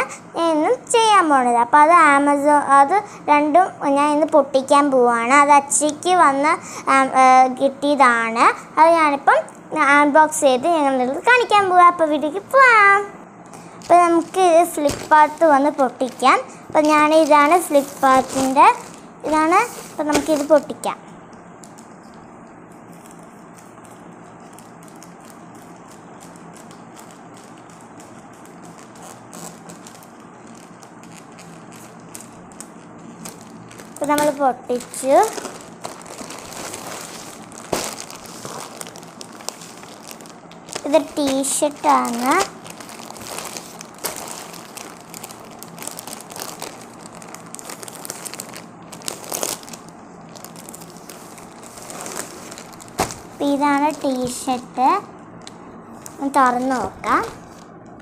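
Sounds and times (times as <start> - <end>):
faint background hum: 0.0 - 58.0
plastic crinkling: 13.5 - 58.0
scissors snipping plastic bag: 13.8 - 20.8, 24.5 - 54.6.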